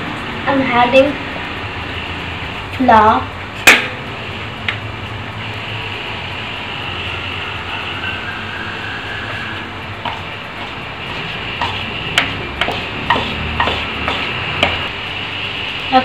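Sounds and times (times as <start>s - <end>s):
background hum and hiss: 0.0s - 16.0s
spatula scraping plastic bowl: 10.0s - 14.8s
spatula tapping bowl: 10.0s - 14.9s.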